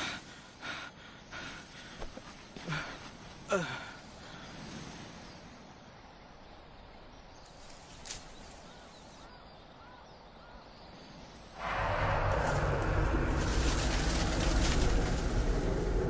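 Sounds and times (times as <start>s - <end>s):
loud rush of sound: 11.6s - 16.0s.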